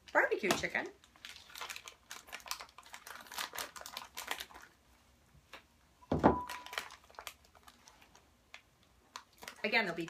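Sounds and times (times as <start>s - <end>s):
plastic bag crinkling: 0.1s - 4.9s, 6.2s - 10.0s.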